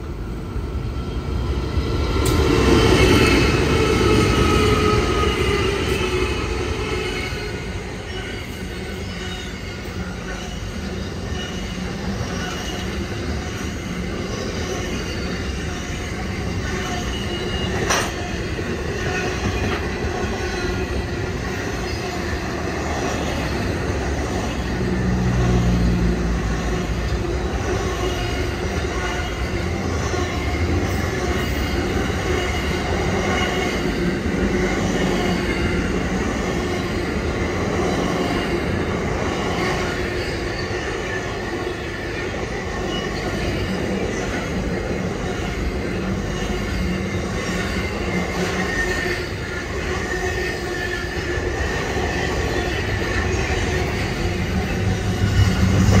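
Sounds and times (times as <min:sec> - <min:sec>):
diesel locomotives passing: 0:00.0 - 0:56.0
wagons rumbling over rails: 0:00.0 - 0:56.0.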